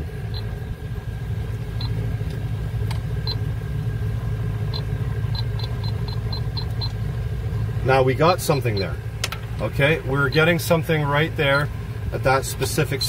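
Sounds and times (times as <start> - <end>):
compressors humming: 0.0 - 13.0
leak detector beeping: 0.2 - 0.7, 1.7 - 2.0, 3.2 - 3.5, 4.7 - 7.0, 8.4 - 9.0, 10.1 - 10.8.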